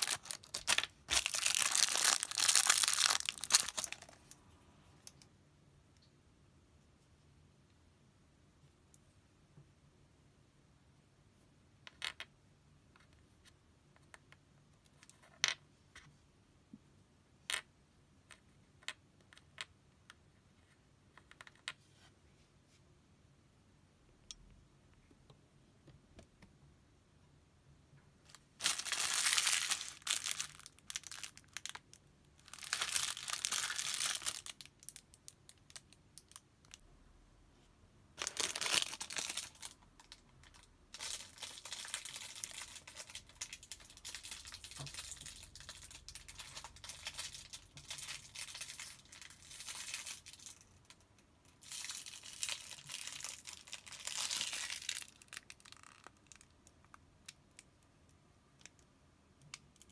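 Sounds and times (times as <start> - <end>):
plastic packaging crinkling: 0.0 - 4.4, 28.3 - 36.8, 38.2 - 51.0, 51.6 - 56.5.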